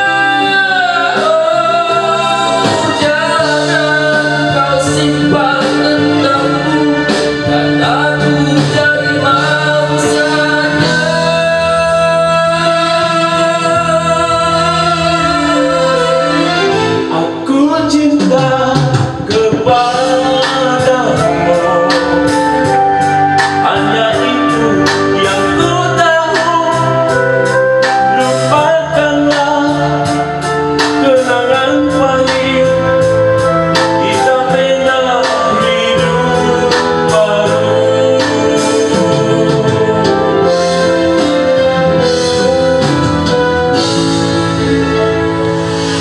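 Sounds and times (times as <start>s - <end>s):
man singing into a microphone: 0.0s - 46.0s
pop backing track with keyboard: 0.0s - 46.0s.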